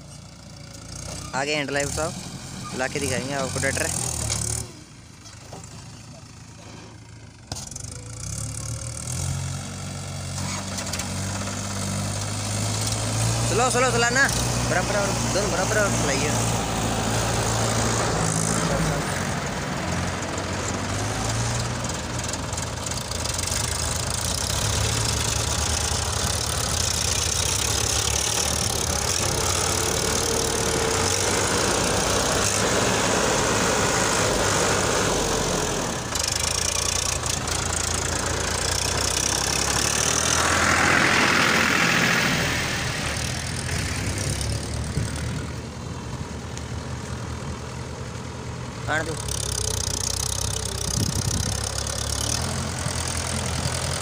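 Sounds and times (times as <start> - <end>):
diesel tractor engines under load: 0.0 - 54.0.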